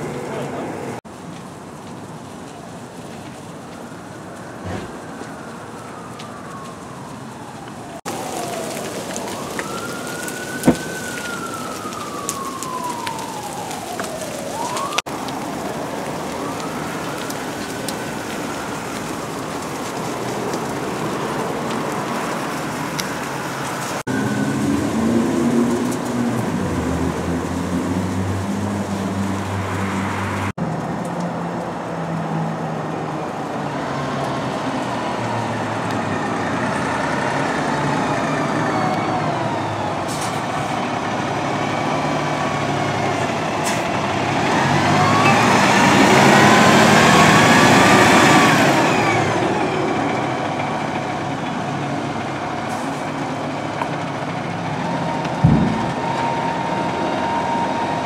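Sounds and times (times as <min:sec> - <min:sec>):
fire engine siren wailing: 0:00.0 - 0:58.0
fire hissing: 0:08.0 - 0:24.0
sharp pop: 0:10.6 - 0:10.9, 0:55.4 - 0:56.3.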